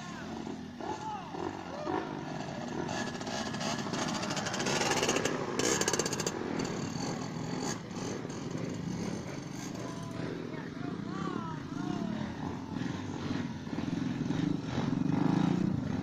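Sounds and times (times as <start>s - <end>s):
motorcycle engine revving hard: 0.0s - 16.0s.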